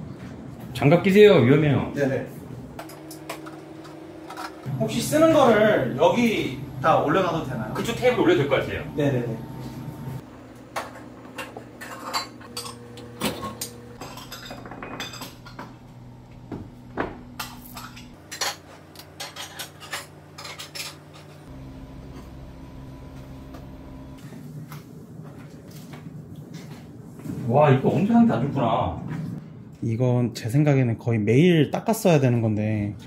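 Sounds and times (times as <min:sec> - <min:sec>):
metal pots and utensils clanking: 0:10.8 - 0:15.9, 0:17.4 - 0:21.6.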